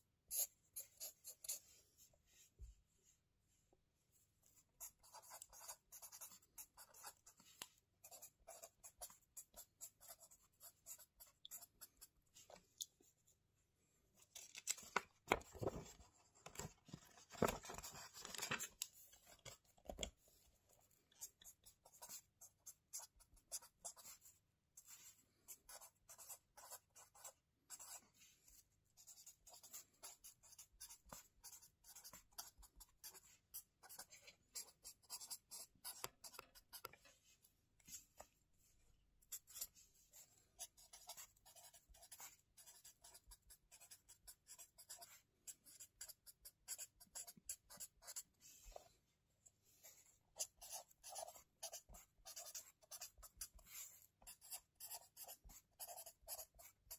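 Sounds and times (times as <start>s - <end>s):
pen scratching on paper: 0.3s - 1.7s, 4.8s - 12.2s, 21.2s - 28.3s, 29.0s - 36.9s, 39.3s - 48.7s, 49.8s - 56.9s.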